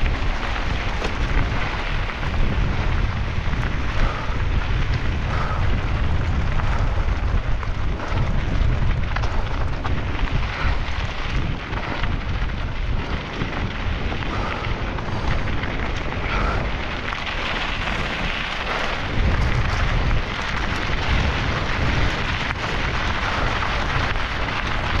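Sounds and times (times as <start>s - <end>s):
tyres crunching on rocks: 0.0s - 3.7s
bike rattling: 0.0s - 25.0s
wind buffeting microphone: 0.0s - 25.0s.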